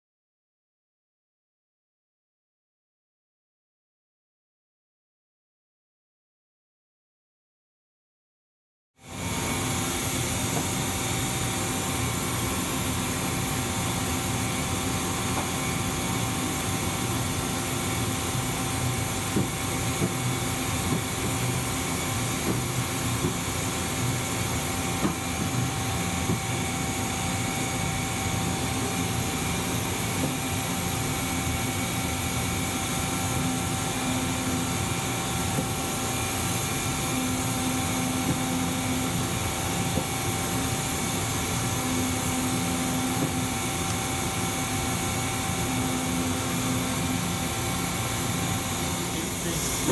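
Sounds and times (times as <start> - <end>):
milling machine hum: 9.0 - 49.9.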